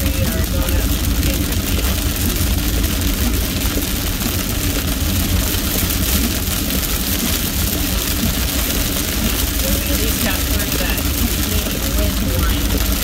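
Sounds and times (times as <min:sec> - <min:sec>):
engine and road rumble: 0:00.0 - 0:13.0
rain and tyres hissing: 0:00.0 - 0:13.0.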